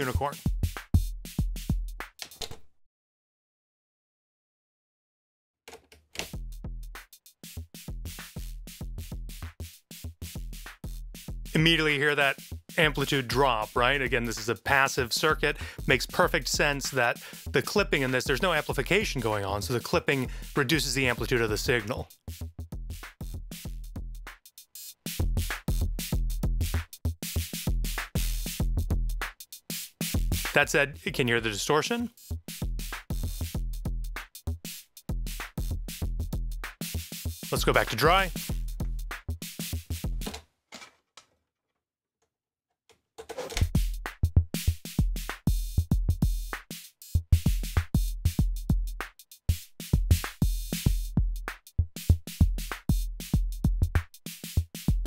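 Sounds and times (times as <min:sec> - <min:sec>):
clipped drum machine beat: 0:00.0 - 0:02.3, 0:06.2 - 0:40.3, 0:43.6 - 0:55.0.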